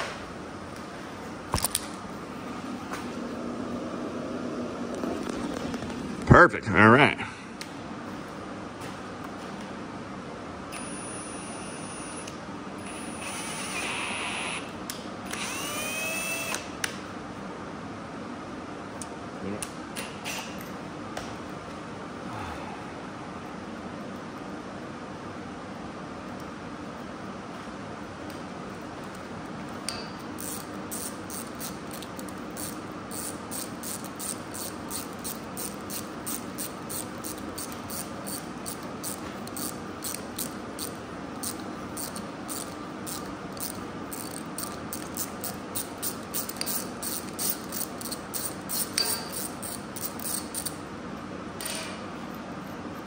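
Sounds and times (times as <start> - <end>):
low shop hum: 0.0 - 53.0
ratcheting tap wrench clicking: 29.9 - 50.8.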